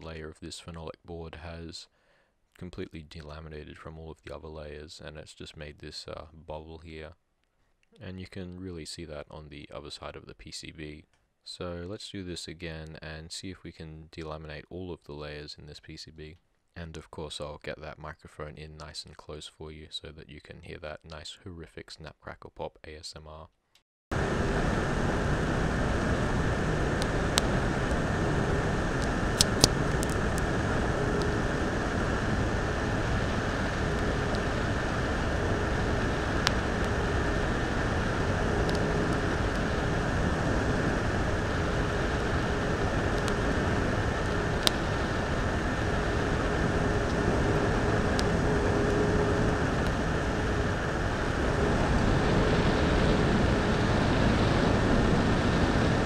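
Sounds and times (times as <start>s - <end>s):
faint hum: 0.0s - 23.5s, 24.1s - 56.0s
circuit board crackling and popping: 24.2s - 56.0s
hot air gun blowing: 24.2s - 56.0s.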